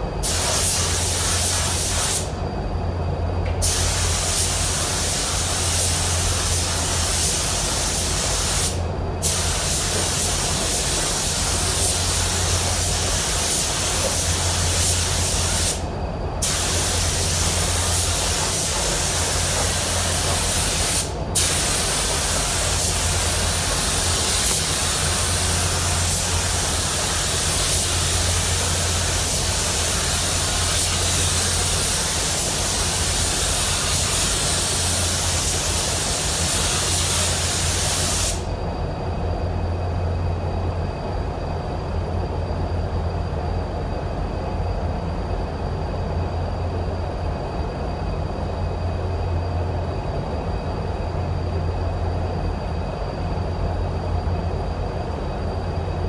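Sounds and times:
steady low hum: 0:00.0 - 0:56.0
spray gun hissing: 0:00.2 - 0:02.4, 0:03.6 - 0:38.5.

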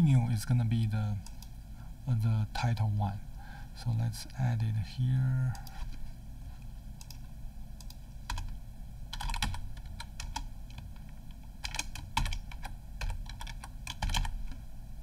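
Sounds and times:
typing on computer keyboard: 0:07.8 - 0:08.5, 0:09.1 - 0:10.9, 0:11.6 - 0:14.6.

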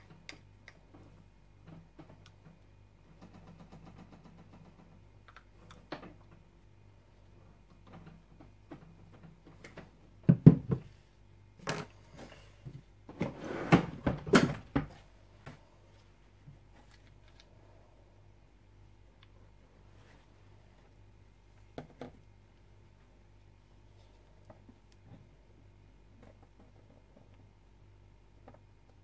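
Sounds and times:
steady low hum: 0:00.0 - 0:29.0.

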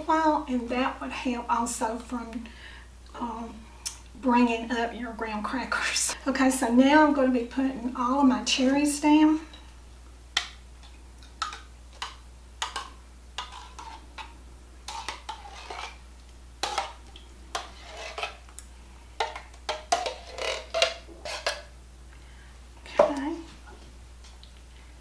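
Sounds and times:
spoon scraping tin can and glass dish: 0:14.9 - 0:16.0, 0:17.6 - 0:18.4.

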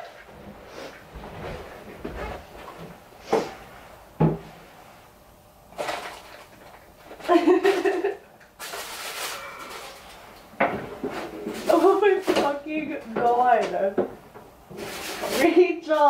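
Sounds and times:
person's voice: 0:11.6 - 0:14.0, 0:15.3 - 0:16.0.

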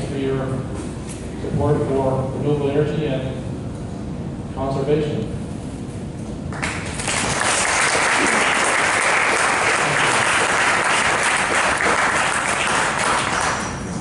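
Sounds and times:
audience applauding: 0:06.5 - 0:13.9.

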